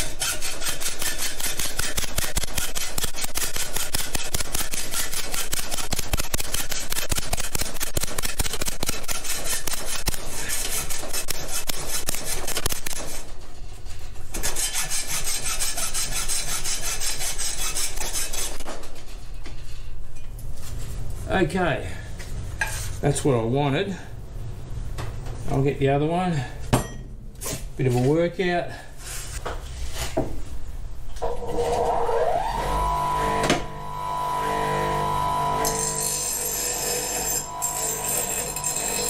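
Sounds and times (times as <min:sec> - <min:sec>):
hacksaw cutting metal pipe: 0:00.0 - 0:13.3, 0:14.3 - 0:18.8, 0:31.5 - 0:39.0.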